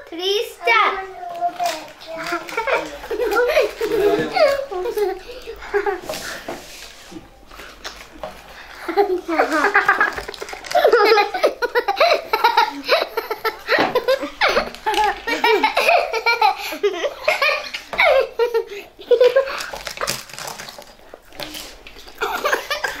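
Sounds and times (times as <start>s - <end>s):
girls laughing and giggling: 2.1s - 6.7s, 8.6s - 20.1s, 22.1s - 23.0s.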